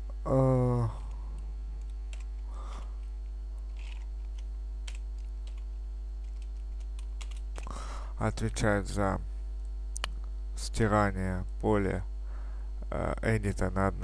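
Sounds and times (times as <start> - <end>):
man humming: 0.0 - 1.4
electrical mains hum: 0.0 - 14.0
keyboard keystrokes and clicks: 3.8 - 7.7.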